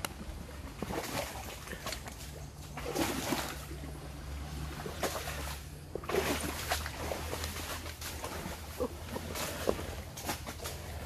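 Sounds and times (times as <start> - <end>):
elephant steps squelching in mud: 0.0 - 11.0.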